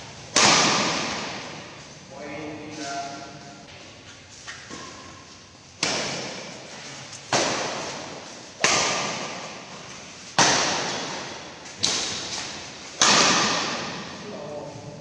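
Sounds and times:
rackets striking shuttlecock: 10.3s - 14.2s.

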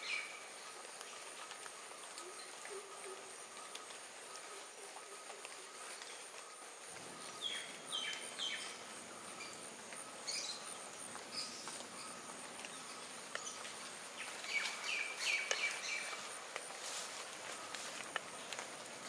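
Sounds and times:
birds chirping: 0.0s - 19.0s
high insect whine: 0.0s - 19.0s
soft hiss of wet plantation: 0.0s - 19.0s
light ticks: 9.4s - 14.0s.

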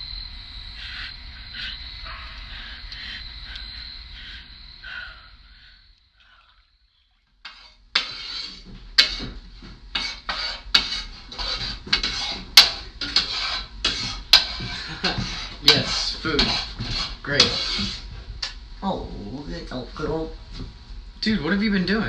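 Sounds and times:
dishes and cutlery clattering: 7.5s - 17.9s.

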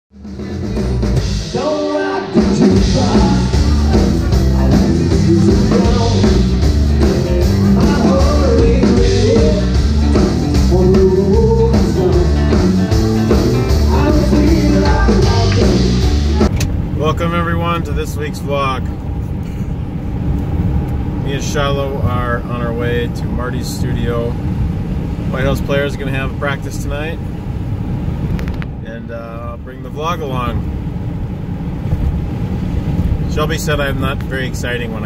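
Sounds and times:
country band playing: 0.2s - 16.7s
man singing: 0.3s - 16.5s.

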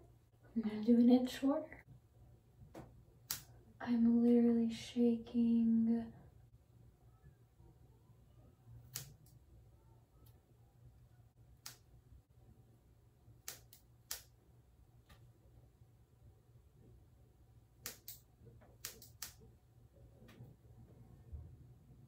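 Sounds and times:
scissors snipping wet hair: 8.9s - 9.4s, 13.4s - 14.3s, 17.8s - 18.2s, 18.8s - 19.4s.

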